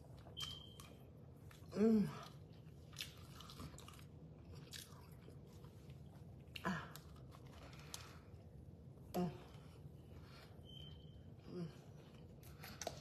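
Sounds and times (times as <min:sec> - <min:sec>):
faint chewing: 0:00.1 - 0:08.6.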